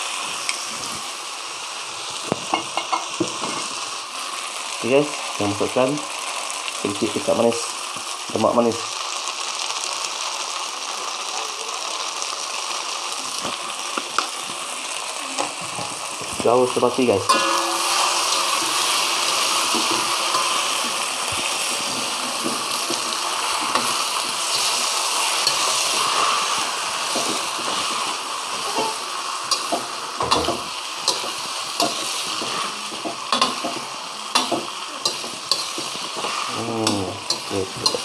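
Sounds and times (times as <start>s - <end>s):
noodles sizzling in oil: 0.0s - 38.0s
spatula scraping and knocking wok: 2.4s - 3.8s, 17.3s - 38.0s.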